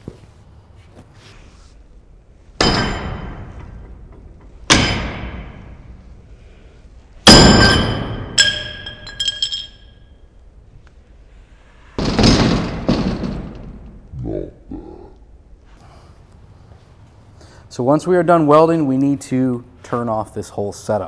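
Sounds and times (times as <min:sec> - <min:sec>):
sharp metal clank: 0:02.6 - 0:03.9, 0:07.2 - 0:10.0
sledgehammer clanging on steel: 0:02.6 - 0:05.9, 0:07.2 - 0:10.1
light metallic clinks: 0:08.4 - 0:10.1.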